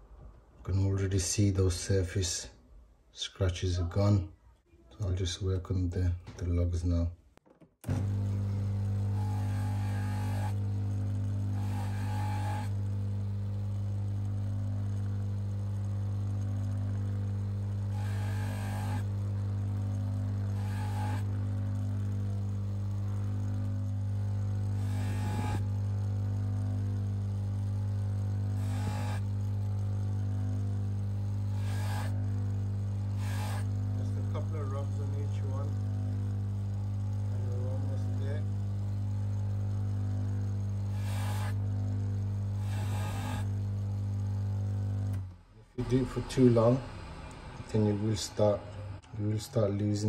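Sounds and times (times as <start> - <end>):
polishing motor humming: 7.8 - 50.0
metal rubbing on buffing wheel: 11.6 - 12.8, 17.9 - 19.1, 20.5 - 21.3, 24.7 - 25.7, 31.4 - 32.3, 33.0 - 34.8, 40.9 - 41.6.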